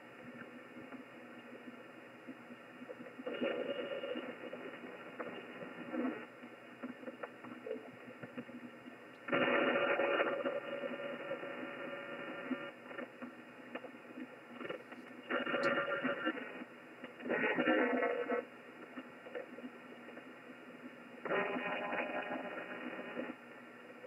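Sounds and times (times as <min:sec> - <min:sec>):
radio band noise hiss: 0:00.0 - 0:24.0.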